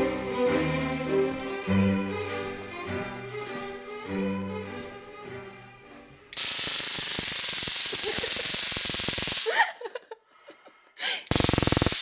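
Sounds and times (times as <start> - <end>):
stun gun electric arc crackling: 6.3 - 9.5, 11.3 - 12.0.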